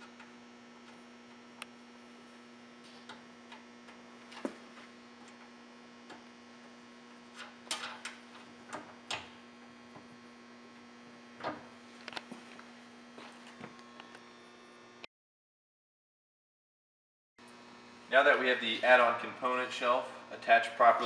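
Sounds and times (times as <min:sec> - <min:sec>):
nuts and bolts clicking: 0:07.3 - 0:09.3.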